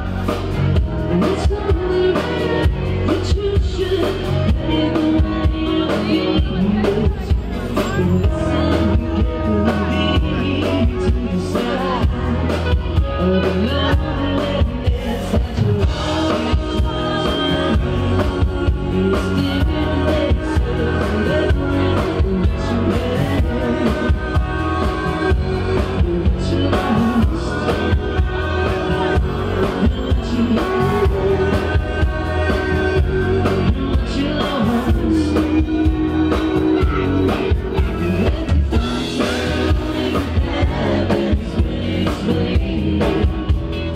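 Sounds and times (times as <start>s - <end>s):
drum kit: 0.0s - 43.9s
electric bass: 0.0s - 43.9s
man singing lead: 0.0s - 43.9s.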